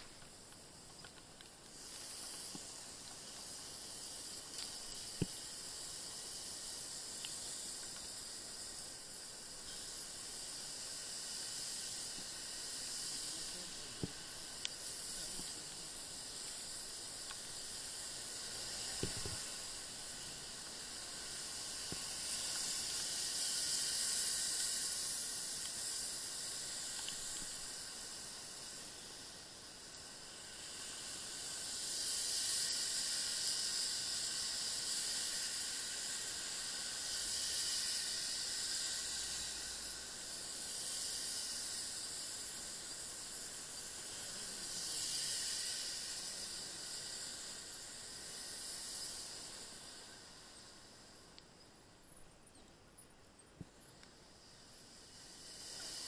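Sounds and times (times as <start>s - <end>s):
rain: 0.0s - 51.4s, 53.7s - 56.0s
tyres hissing on wet road: 0.0s - 51.7s, 53.7s - 56.0s.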